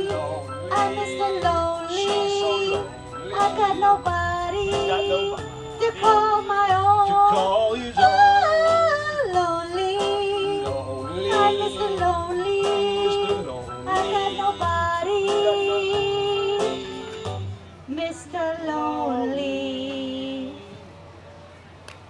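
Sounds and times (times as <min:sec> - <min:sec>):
sliding wavering lead melody: 0:00.0 - 0:07.4, 0:08.0 - 0:17.8
steady beat: 0:00.0 - 0:17.5.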